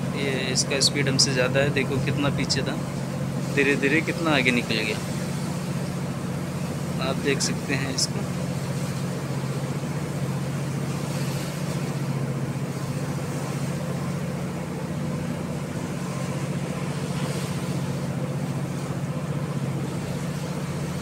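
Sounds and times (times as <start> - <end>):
hiss of wind and sea: 0.0 - 21.0
ship engine drone: 0.0 - 21.0.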